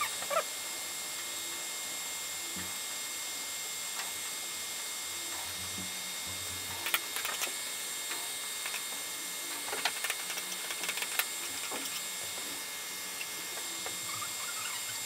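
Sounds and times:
stepper motors whining: 5.1s - 15.0s.

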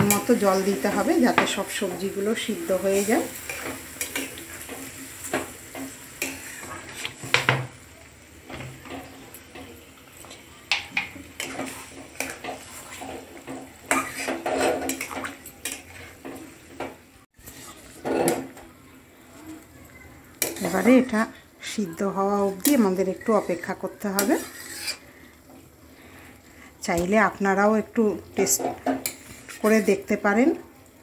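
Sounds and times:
spatula scraping metal pan: 2.6s - 7.4s, 10.7s - 16.4s, 17.4s - 18.5s, 20.4s - 21.2s, 22.5s - 25.3s, 28.4s - 30.1s.

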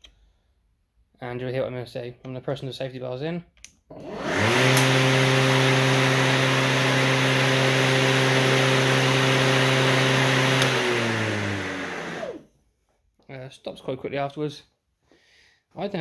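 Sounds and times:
electric lawnmower motor humming: 3.9s - 12.4s.

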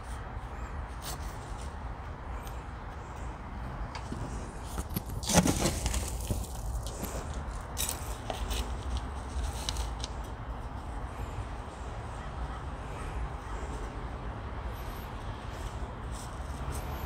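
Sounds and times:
hands pushing gritty soil: 4.2s - 10.2s.

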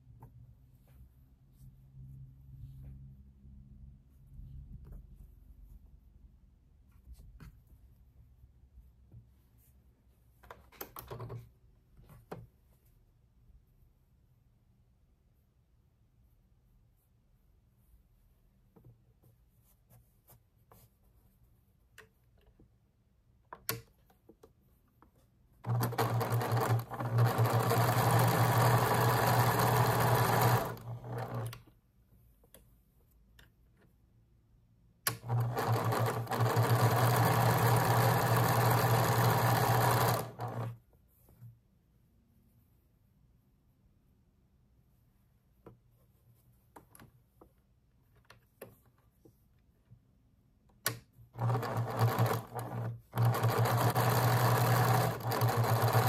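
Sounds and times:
electric sewing machine stitching: 25.6s - 31.6s, 35.1s - 40.8s, 51.4s - 56.0s.

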